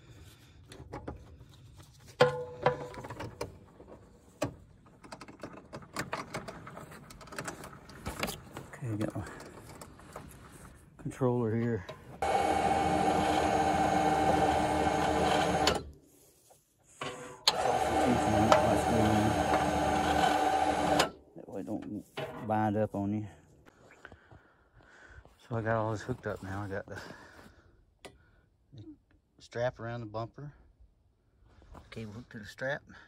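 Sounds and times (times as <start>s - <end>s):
winch motor whining: 11.8s - 16.0s, 17.1s - 21.2s
winch click: 17.4s - 21.1s.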